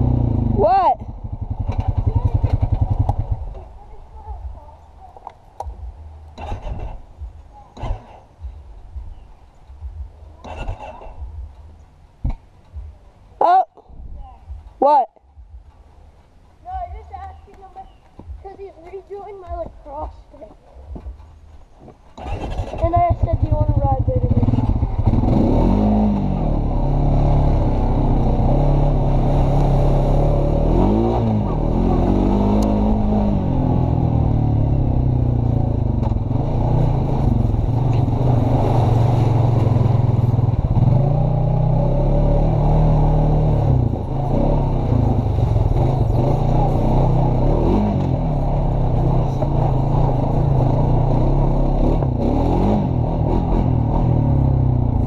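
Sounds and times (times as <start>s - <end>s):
quad bike engine revving: 0.0s - 3.7s, 6.4s - 8.4s, 10.3s - 11.4s, 22.2s - 55.0s.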